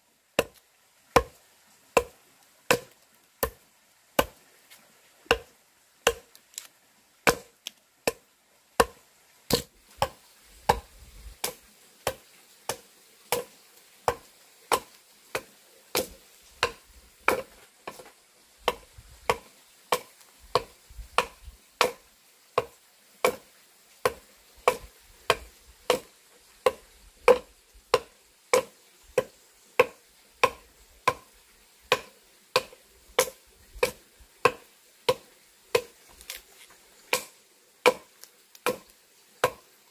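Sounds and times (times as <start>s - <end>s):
axe chopping into log: 1.2s - 1.4s, 2.7s - 3.6s, 5.3s - 6.7s, 7.3s - 7.5s, 8.8s - 13.5s, 14.1s - 18.1s, 18.7s - 22.0s, 22.6s - 23.4s, 24.0s - 26.1s, 31.9s - 36.4s, 37.1s - 37.3s, 37.9s - 39.6s.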